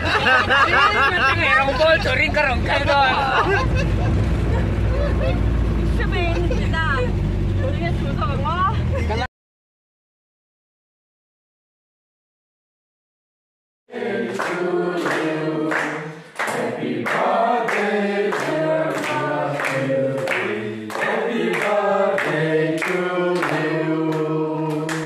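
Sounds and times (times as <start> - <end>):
group singing in harmony: 13.9 - 25.0.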